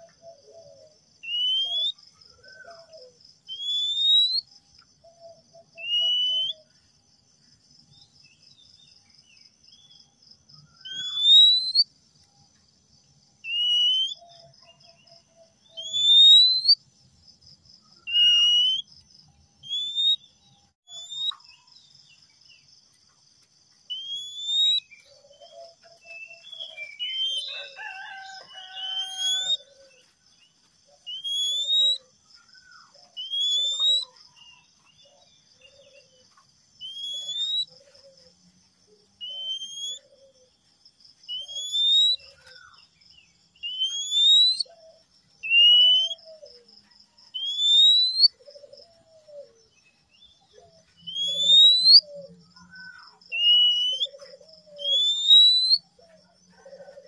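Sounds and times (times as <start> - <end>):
bird singing rising whistles: 1.2 - 4.5, 5.8 - 6.7, 10.7 - 11.9, 13.4 - 14.4, 15.7 - 16.8, 18.0 - 18.9, 19.6 - 20.2, 20.9 - 21.5, 23.9 - 25.0, 26.1 - 29.6, 31.1 - 32.0, 33.2 - 34.2, 36.8 - 37.7, 39.2 - 40.1, 41.3 - 42.8, 43.6 - 44.7, 45.4 - 46.3, 47.3 - 48.4, 51.0 - 54.1, 54.7 - 55.8
pulsing insect trill: 31.0 - 57.0.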